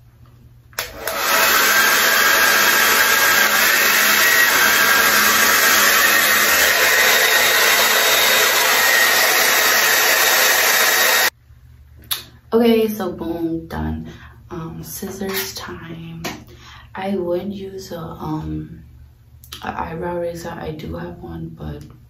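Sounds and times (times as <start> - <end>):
hair dryer blowing: 0.8 - 11.3.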